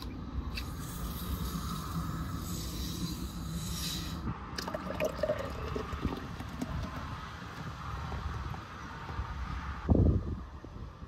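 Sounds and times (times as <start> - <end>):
water pouring into glass: 4.6 - 7.0.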